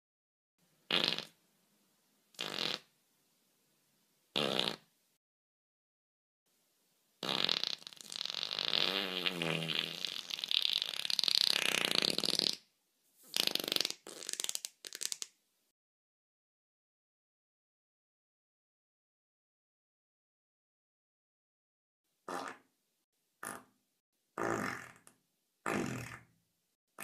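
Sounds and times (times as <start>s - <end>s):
farting: 0.9s - 1.4s, 2.4s - 2.9s, 4.4s - 4.9s, 7.2s - 12.7s, 13.3s - 15.3s, 22.3s - 22.7s, 23.4s - 23.8s, 24.4s - 26.4s.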